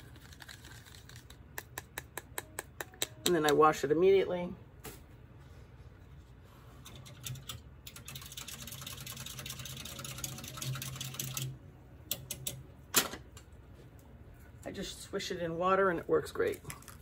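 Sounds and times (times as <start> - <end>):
whisk rattling in cup of water: 7.0 - 11.4.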